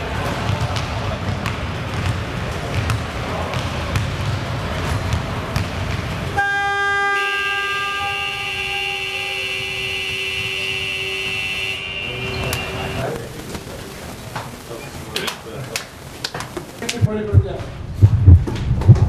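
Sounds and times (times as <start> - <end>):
murmur of voices: 0.0 - 6.3, 9.0 - 17.9
scoreboard horn blaring: 6.4 - 13.4.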